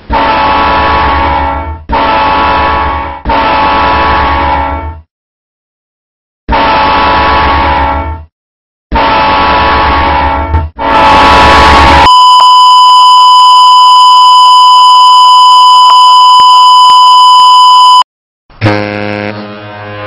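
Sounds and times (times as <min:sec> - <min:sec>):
loud horn blasts: 0:00.0 - 0:05.1, 0:06.5 - 0:08.3, 0:08.9 - 0:12.6, 0:18.6 - 0:20.0
high test-tone beep: 0:11.8 - 0:18.1.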